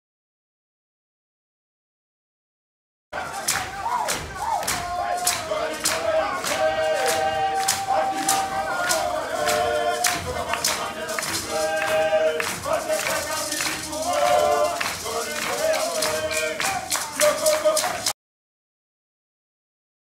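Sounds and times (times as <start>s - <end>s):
steady percussive beat: 3.2s - 18.1s
women singing together: 3.2s - 18.1s.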